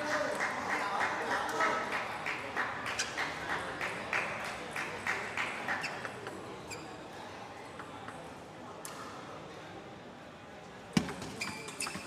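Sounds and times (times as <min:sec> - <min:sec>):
table tennis ball bouncing: 0:11.0 - 0:12.0.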